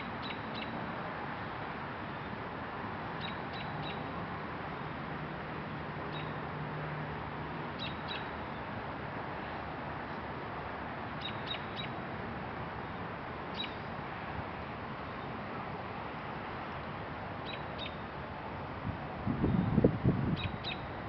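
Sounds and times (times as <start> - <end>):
bird chirping: 0.2 - 0.7, 11.2 - 11.9, 13.6 - 13.9, 17.5 - 18.0, 20.4 - 20.9.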